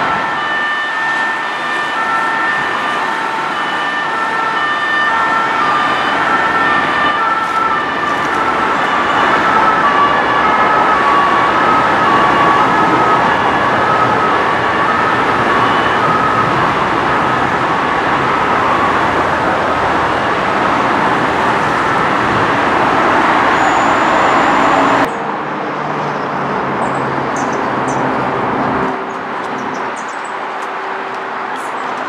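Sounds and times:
two-tone police siren: 0.0 - 25.2
dense motorway traffic rushing: 0.0 - 32.0.

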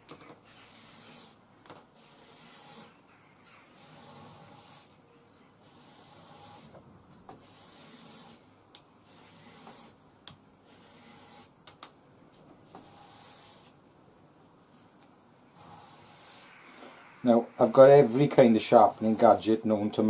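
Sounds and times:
knife scraping on abrasive strip: 0.4 - 1.4, 2.0 - 5.0, 7.4 - 8.4, 9.1 - 10.0, 10.6 - 11.5.

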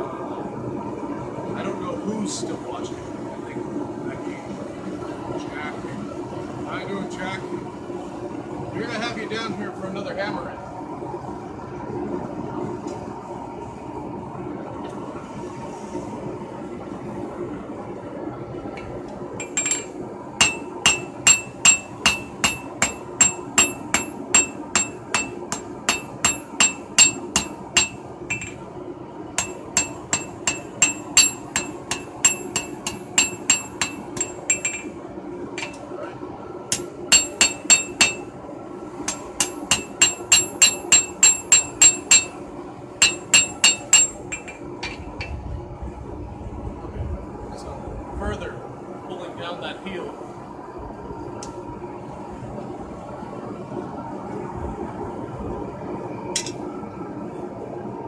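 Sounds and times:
hammer striking steel on anvil: 19.4 - 28.6, 29.4 - 34.9, 36.7 - 38.3, 39.1 - 42.4, 43.0 - 45.3.

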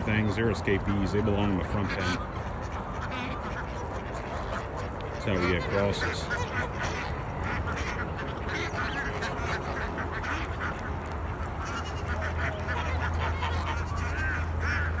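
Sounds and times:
ducks quacking: 0.0 - 15.0
geese honking: 0.0 - 15.0.

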